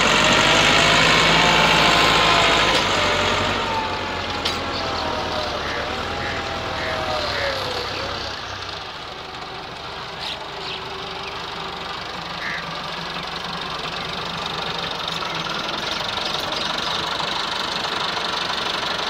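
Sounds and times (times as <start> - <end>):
tractor diesel engine under load: 0.0 - 19.0.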